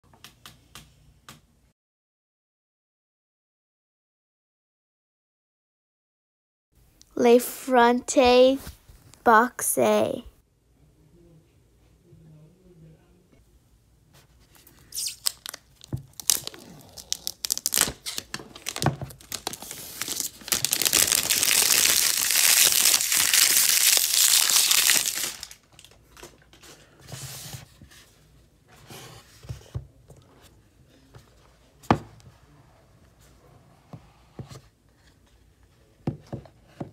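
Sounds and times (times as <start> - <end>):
plastic wrap crinkling and tearing: 14.8 - 26.0.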